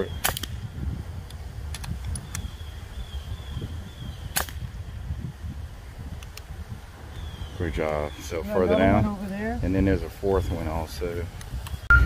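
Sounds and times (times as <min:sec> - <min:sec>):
air rifle snap: 0:00.2 - 0:00.6, 0:04.3 - 0:04.7.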